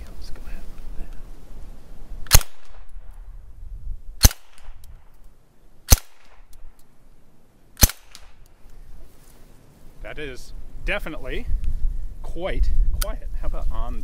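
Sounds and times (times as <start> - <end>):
suppressed gunshots: 2.2 - 3.2, 4.2 - 5.1, 5.9 - 6.7, 7.8 - 8.4.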